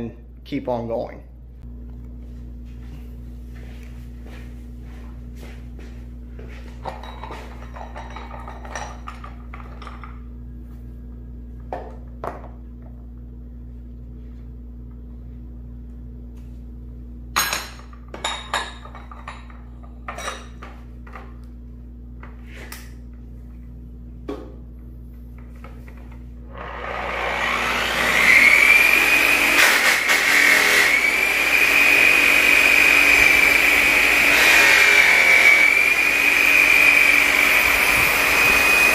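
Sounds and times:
steady low hum: 0.0s - 27.8s
metal tools clinking and knocking: 6.8s - 10.2s.

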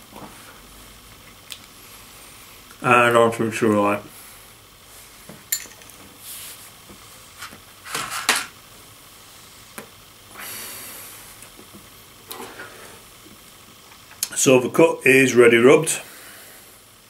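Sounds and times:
breathy exhale: 10.3s - 11.4s, 12.3s - 13.1s, 16.0s - 16.9s.

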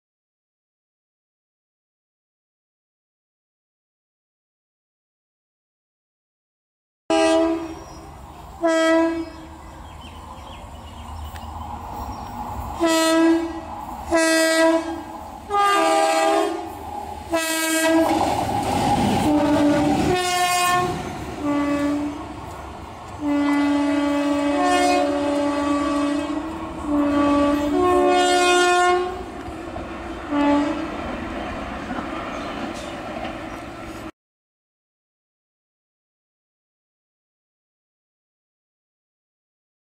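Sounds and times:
locomotive air horn blasts: 7.1s - 7.9s, 8.6s - 9.6s, 12.8s - 18.2s, 19.3s - 22.2s, 23.2s - 29.3s, 30.3s - 30.9s
locomotive rumble and wheel clatter: 7.5s - 34.1s.

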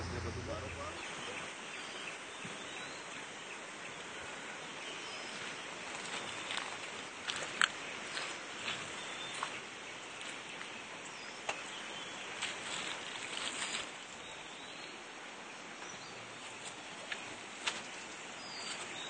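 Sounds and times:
outdoor background noise: 0.0s - 19.0s
rustling: 12.4s - 14.2s.

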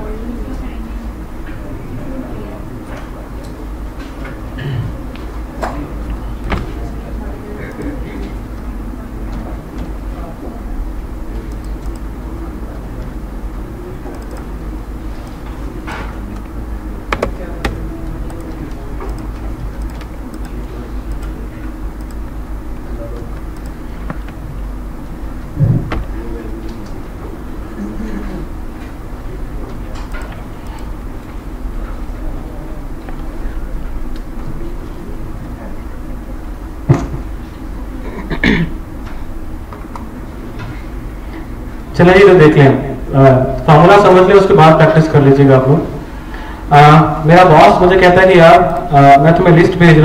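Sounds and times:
low room hum: 0.0s - 50.0s
man clearing throat: 4.6s - 5.0s, 27.8s - 28.5s, 38.0s - 38.8s
man coughing: 4.6s - 5.0s, 38.0s - 38.8s
computer mouse clicks: 11.4s - 12.1s, 14.1s - 14.5s, 17.1s - 21.4s, 22.0s - 22.4s, 23.3s - 24.4s, 30.0s - 31.0s.

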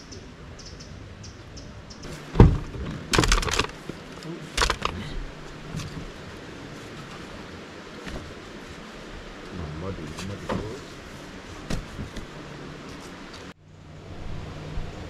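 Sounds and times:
metal camp table clattering: 2.1s - 5.1s.

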